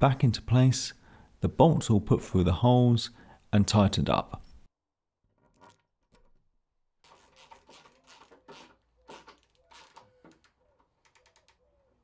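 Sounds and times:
spanner scraping and clicking: 7.1 - 11.6.

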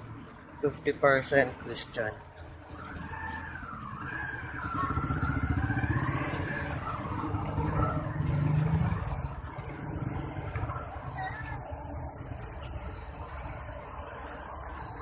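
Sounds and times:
motorcycle engine passing: 4.0 - 10.7.

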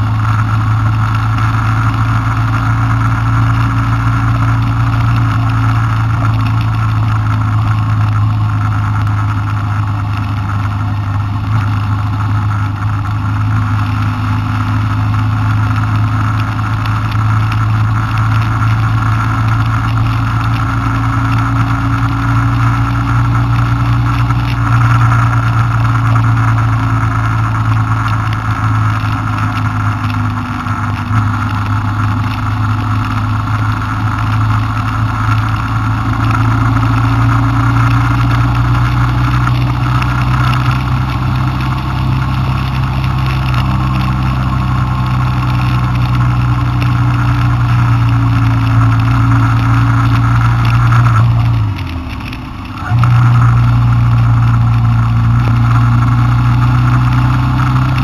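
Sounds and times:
car engine running: 0.0 - 58.0
road noise: 0.0 - 58.0.

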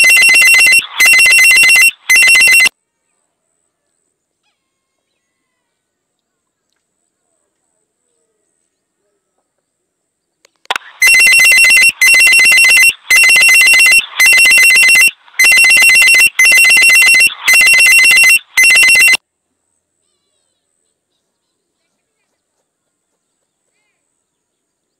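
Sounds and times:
pulsing two-tone ringtone: 0.0 - 2.7, 10.8 - 19.2.

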